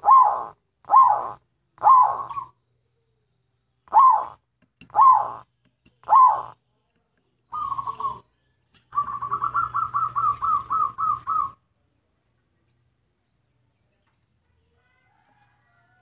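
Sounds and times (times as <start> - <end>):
dove cooing: 0.0 - 2.6, 3.9 - 6.6, 7.5 - 8.3, 8.9 - 11.6.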